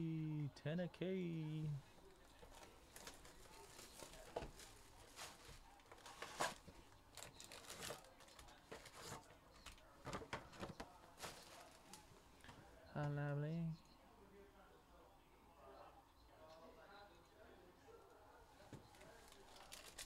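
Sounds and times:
plastic wrap crinkling and tearing: 0:02.5 - 0:12.0, 0:19.0 - 0:20.0.

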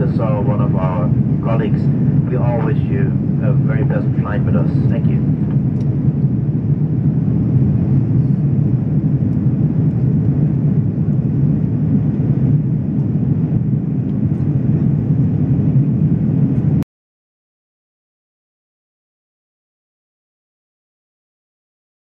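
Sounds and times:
airliner cabin rumble: 0:00.0 - 0:16.8.

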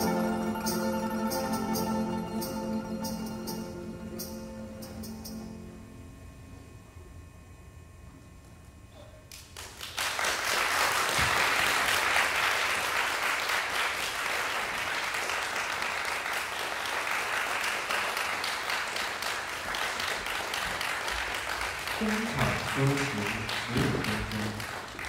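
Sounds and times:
audience applauding: 0:09.4 - 0:25.0.

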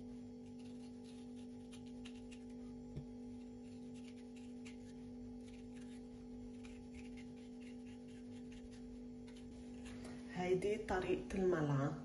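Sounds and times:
steady low hum: 0:00.0 - 0:12.0
spoon scraping courgette: 0:03.3 - 0:10.1.

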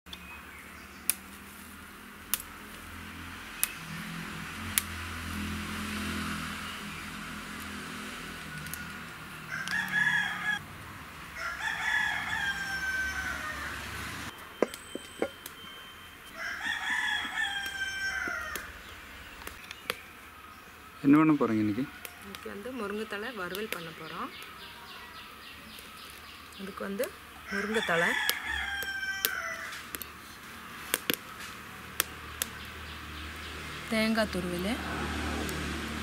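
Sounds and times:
rooster crowing: 0:09.4 - 0:10.6, 0:11.4 - 0:14.1, 0:16.3 - 0:18.8, 0:21.6 - 0:22.6, 0:27.4 - 0:29.9.

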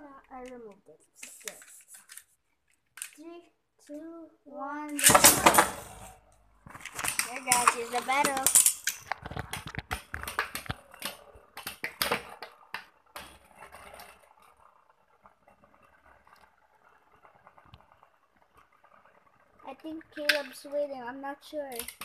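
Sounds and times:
spinning tops clashing and rattling: 0:04.9 - 0:06.2, 0:06.9 - 0:09.1
spinning tops ticking: 0:07.0 - 0:09.1.

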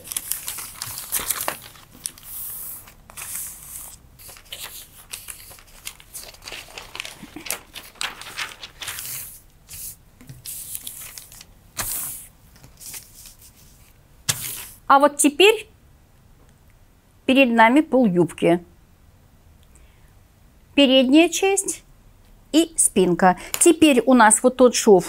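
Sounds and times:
paper rustling and sliding: 0:00.0 - 0:14.8.

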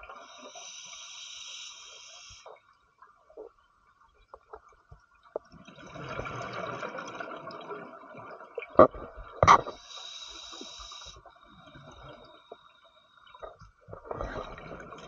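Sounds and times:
regulator hiss on inhale: 0:00.2 - 0:02.5, 0:09.7 - 0:11.3.

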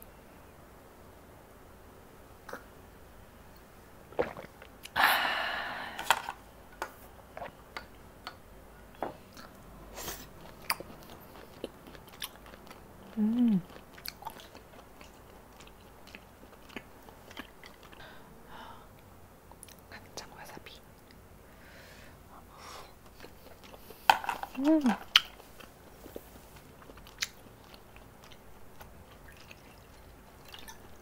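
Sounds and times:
breathy exhale: 0:05.0 - 0:06.2, 0:21.5 - 0:22.9
chewing and mouth noises: 0:09.3 - 0:18.0, 0:23.0 - 0:31.0
person humming: 0:13.1 - 0:13.7, 0:24.6 - 0:25.0.

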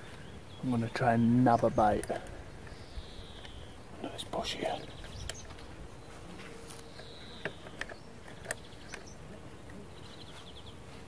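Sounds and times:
insects buzzing: 0:00.0 - 0:10.7
sharp clicks: 0:01.8 - 0:03.7, 0:04.8 - 0:05.7, 0:06.7 - 0:09.8.

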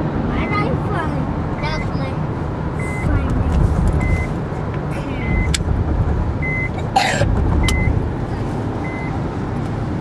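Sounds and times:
car cabin road and engine noise: 0:00.0 - 0:10.0
high warning beep: 0:02.8 - 0:03.2, 0:05.2 - 0:05.6, 0:06.4 - 0:06.9, 0:07.6 - 0:08.0, 0:08.8 - 0:09.2.

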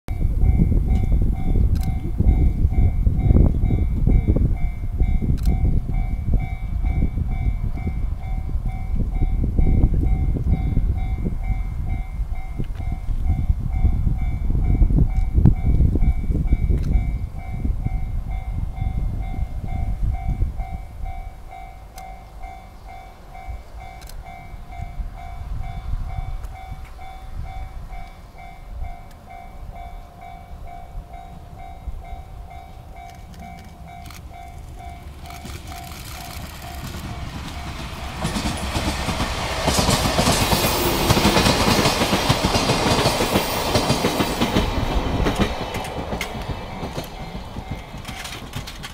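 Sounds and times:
diesel locomotive engine: 0:00.1 - 0:48.9
train wheels clattering on rails: 0:31.6 - 0:48.9.

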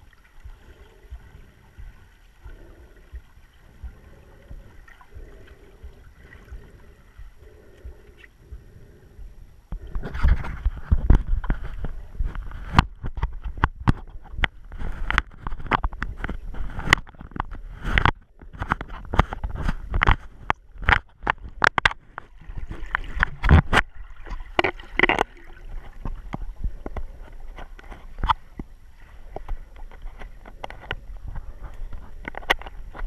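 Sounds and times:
low underwater rumble: 0:00.0 - 0:15.2
underwater clicks and knocks: 0:00.0 - 0:33.0.

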